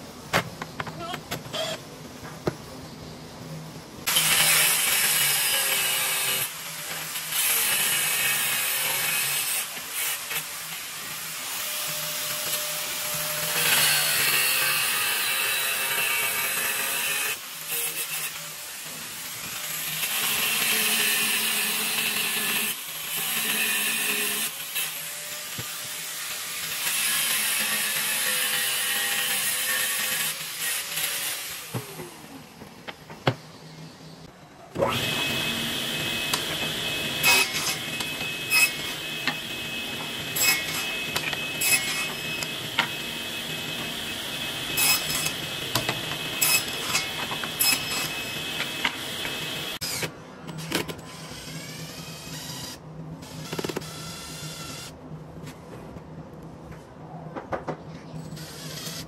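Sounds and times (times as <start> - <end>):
angle grinder cutting metal: 34.8 - 50.1
table saw running: 34.8 - 50.1.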